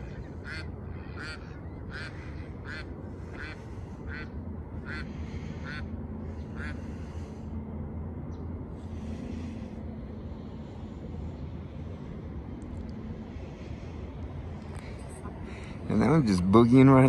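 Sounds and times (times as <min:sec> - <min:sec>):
steady low rumble: 0:00.0 - 0:17.0
duck quacking: 0:00.4 - 0:05.8, 0:06.6 - 0:06.8.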